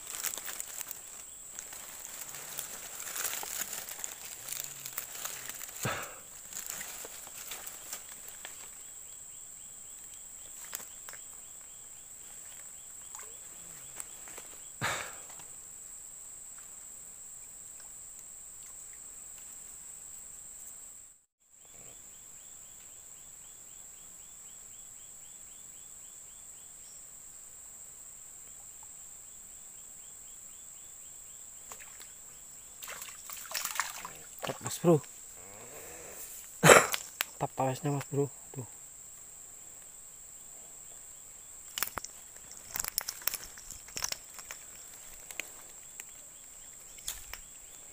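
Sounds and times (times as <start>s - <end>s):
rustling: 0.0s - 8.8s, 41.6s - 47.9s
insects whining: 0.0s - 47.9s.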